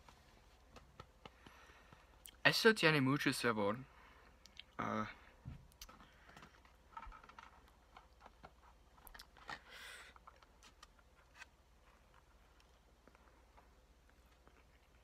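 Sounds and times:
quiet chewing: 11.8 - 15.0.

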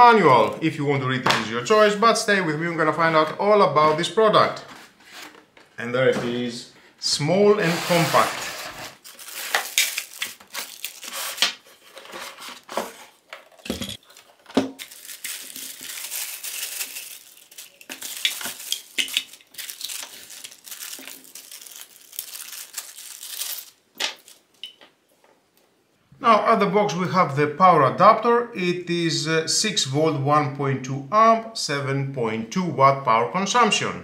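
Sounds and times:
plastic bags crinkling: 9.0 - 12.6, 13.5 - 24.6.

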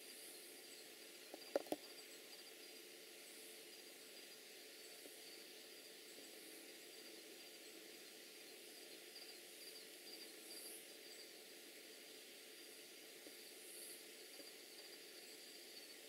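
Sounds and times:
insect chirping: 0.0 - 11.4, 13.3 - 16.0
steady hiss: 0.0 - 16.0.

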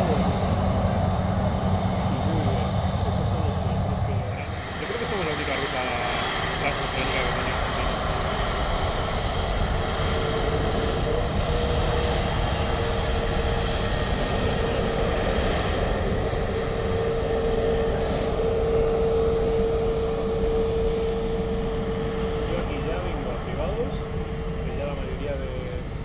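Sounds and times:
jet engines idling with whine: 0.0 - 26.0.

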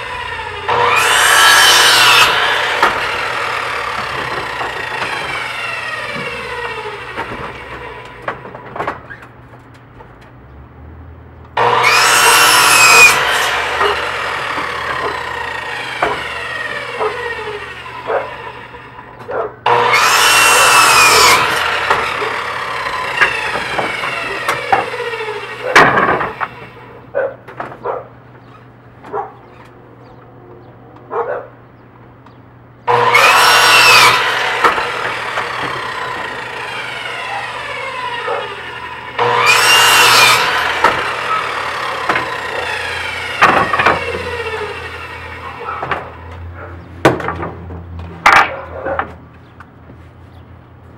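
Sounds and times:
saw blade winding down: 0.0 - 8.1, 11.6 - 19.0, 19.7 - 26.8, 32.9 - 46.2
miter saw cutting wood: 0.0 - 9.2, 11.6 - 27.1, 32.8 - 48.6
wooden knocks and clatter: 7.1 - 10.4, 43.4 - 44.3, 45.8 - 50.0.

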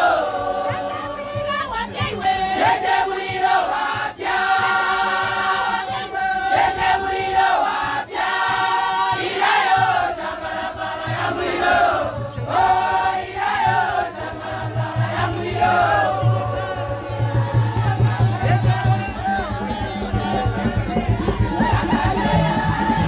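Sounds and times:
choir singing: 0.0 - 23.0
crowd noise: 0.0 - 23.0.

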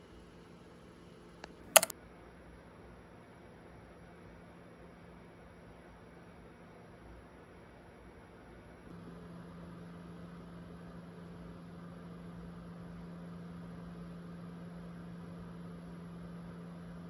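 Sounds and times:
low machine hum: 8.9 - 17.0.

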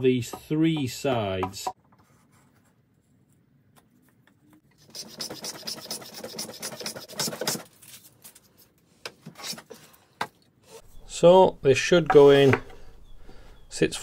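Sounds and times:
hand plane rasping on wood: 4.9 - 7.6.

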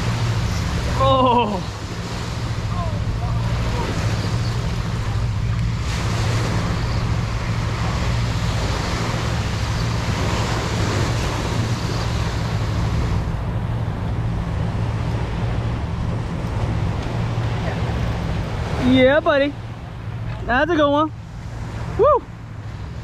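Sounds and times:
small waves breaking: 0.0 - 23.0
wind rumbling on microphone: 0.0 - 23.0.

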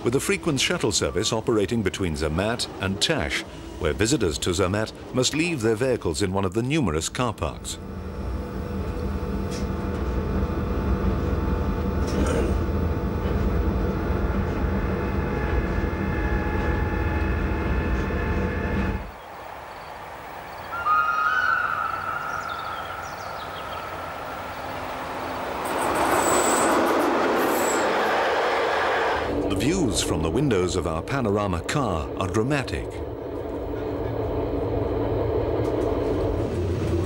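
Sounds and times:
train passing close by: 0.0 - 6.2, 7.7 - 37.0
train rumble on board: 7.8 - 20.6, 22.3 - 37.0.

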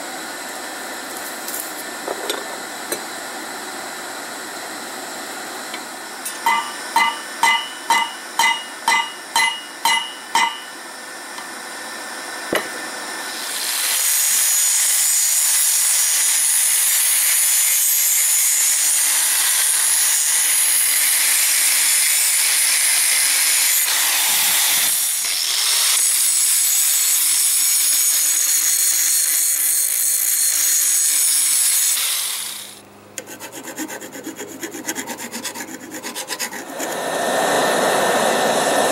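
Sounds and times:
angle grinder cutting steel: 13.3 - 37.1.

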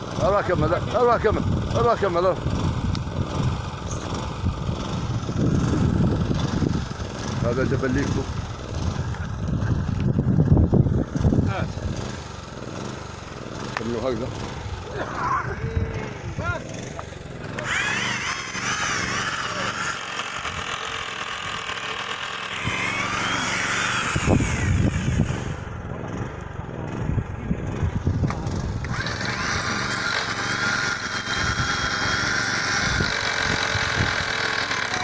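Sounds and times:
power tool motor whine: 16.0 - 35.0.

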